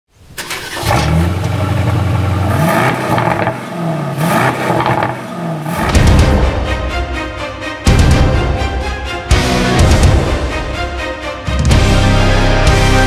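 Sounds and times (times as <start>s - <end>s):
car engine throttle blips: 0.4s - 6.2s.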